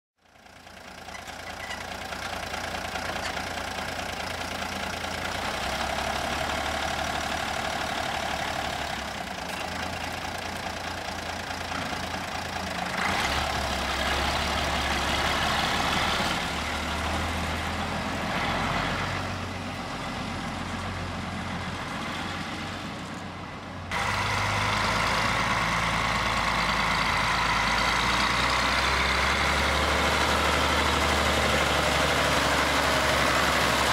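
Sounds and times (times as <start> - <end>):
tractor engine rumbling: 0.2 - 33.9.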